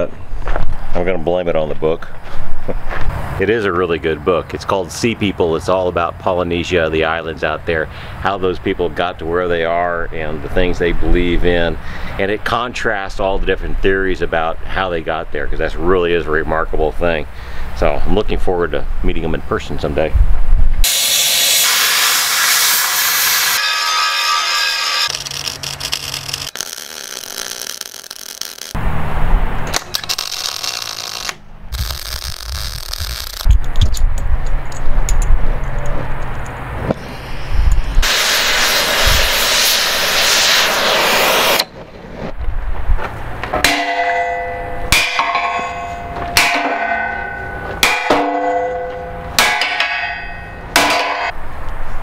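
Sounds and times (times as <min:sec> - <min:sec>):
torch hissing: 0:20.8 - 0:23.6, 0:37.0 - 0:41.7
angle grinder cutting steel: 0:20.8 - 0:28.8, 0:29.8 - 0:33.5
sledgehammer striking steel: 0:43.5 - 0:51.4.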